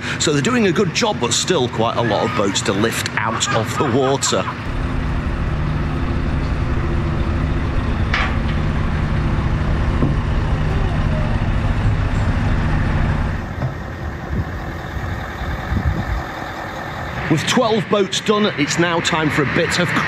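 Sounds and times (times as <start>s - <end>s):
diesel engine running under load: 0.0s - 20.0s.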